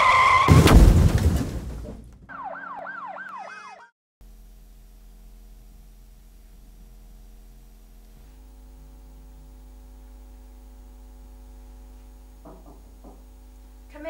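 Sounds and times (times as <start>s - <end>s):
electrical hum: 4.2s - 14.0s.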